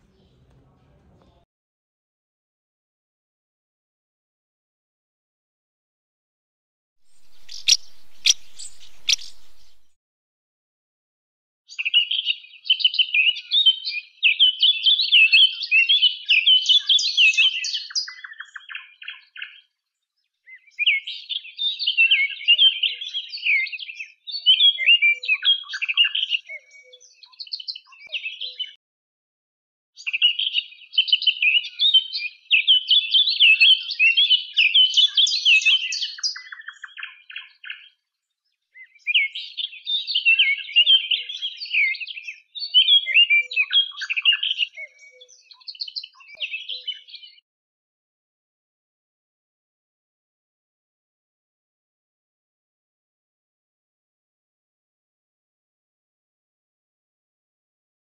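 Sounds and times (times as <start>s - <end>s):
songbird twittering and trilling: 7.0s - 10.0s, 30.0s - 47.4s.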